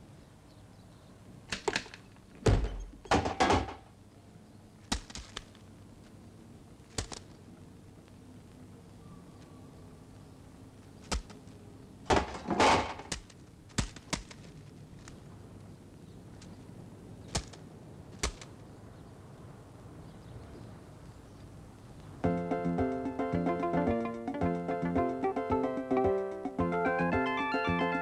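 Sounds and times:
sharp clicks and knocks: 1.5s - 3.9s
clatter and scraping: 12.1s - 13.2s.

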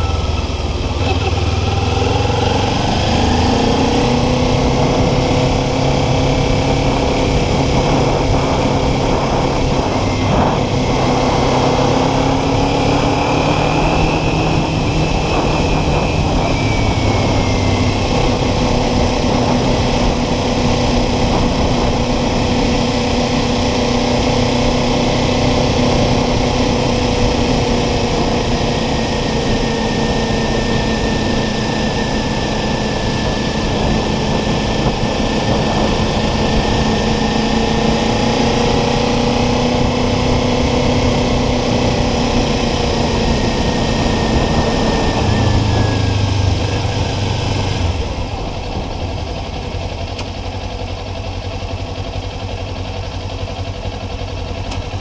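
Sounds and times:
rushing noise: 0.0s - 25.1s
motorcycle engine cruising: 0.0s - 55.0s.

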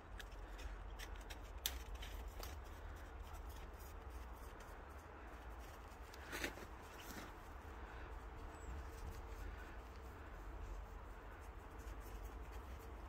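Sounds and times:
footsteps crunching in snow: 1.8s - 7.8s.

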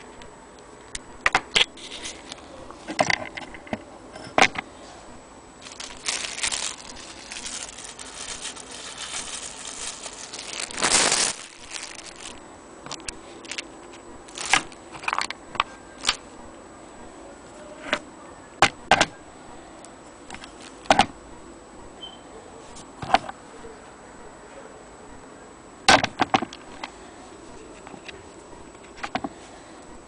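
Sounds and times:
plastic rustling and crinkling: 1.5s - 3.8s, 5.6s - 16.2s, 20.3s - 21.1s.

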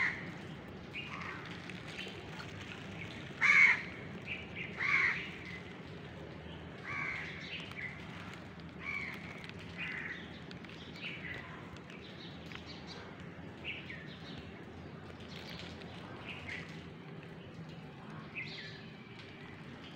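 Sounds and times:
crows cawing: 3.4s - 4.0s, 4.8s - 5.3s, 6.8s - 7.4s, 8.8s - 10.1s.

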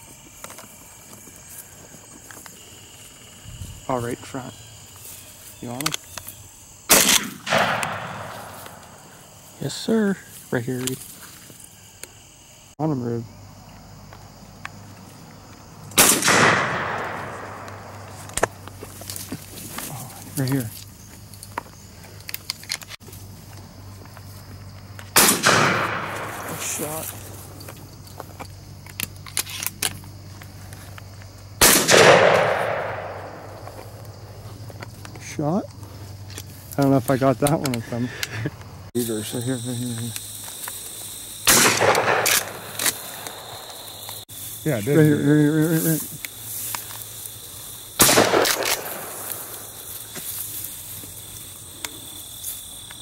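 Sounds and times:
shotgun shot: 6.9s - 8.8s, 16.0s - 18.0s, 25.2s - 26.9s, 31.6s - 33.4s, 41.5s - 43.5s, 48.0s - 49.6s.

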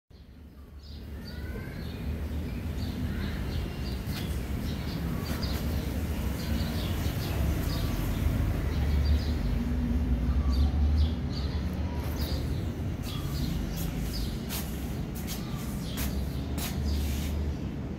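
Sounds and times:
birds chirping: 0.1s - 17.9s.

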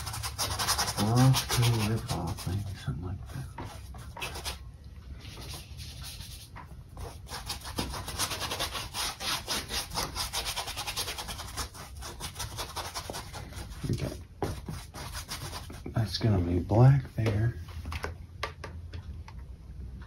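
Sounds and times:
paintbrush scrubbing on canvas: 0.0s - 4.6s, 5.2s - 15.8s.

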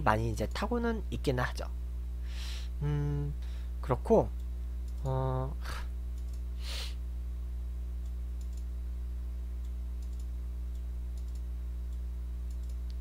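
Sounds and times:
low electrical hum: 0.0s - 13.0s
short breath: 2.2s - 2.7s, 6.6s - 7.0s
faint clicks: 4.4s - 5.1s, 6.1s - 6.4s, 8.0s - 8.7s, 9.6s - 13.0s.

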